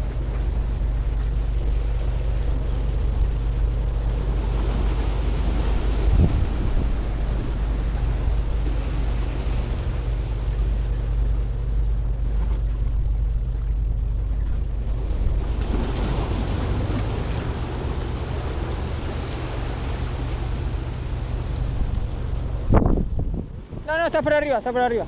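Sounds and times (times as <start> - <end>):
waves breaking on rocks: 0.0 - 11.7, 12.3 - 25.0
wind buffeting microphone: 0.0 - 25.0.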